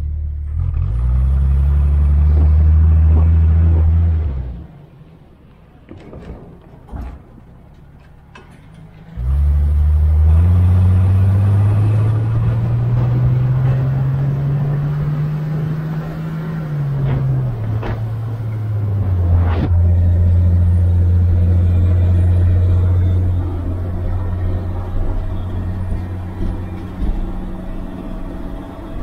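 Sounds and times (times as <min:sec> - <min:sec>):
car engine accelerating: 0:00.0 - 0:05.2, 0:09.1 - 0:29.0
engine knocks: 0:11.6 - 0:29.0.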